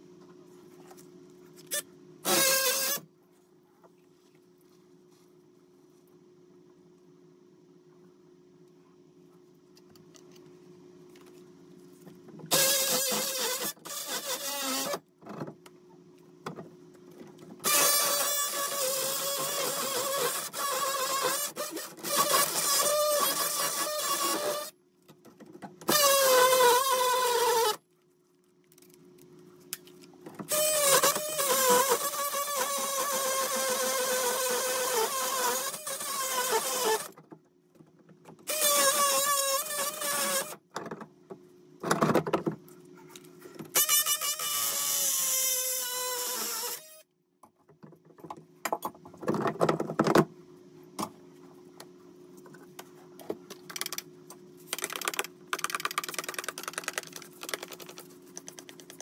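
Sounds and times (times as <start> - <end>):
power tool cutting pipe: 1.7 - 3.0, 12.5 - 15.0, 17.6 - 24.7, 30.5 - 37.1, 38.5 - 40.6, 43.8 - 47.0.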